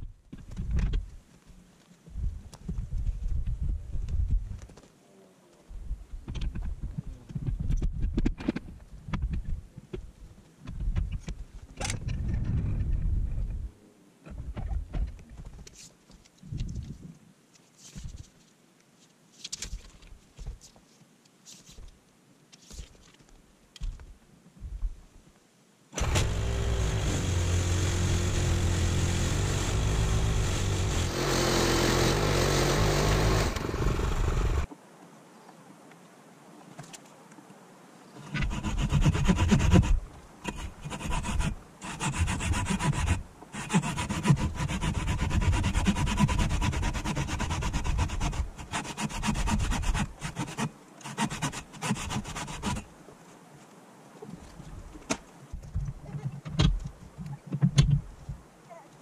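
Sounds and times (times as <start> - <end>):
power tool running: 26.0 - 34.7
woodworking knocks and thumps: 55.1 - 58.4.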